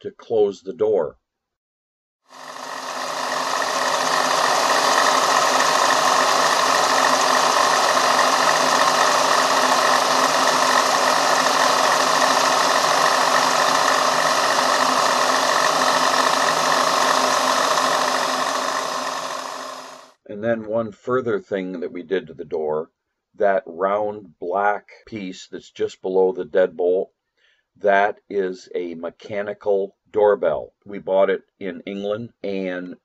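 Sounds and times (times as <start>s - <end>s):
milling machine cutting metal: 2.3s - 20.1s.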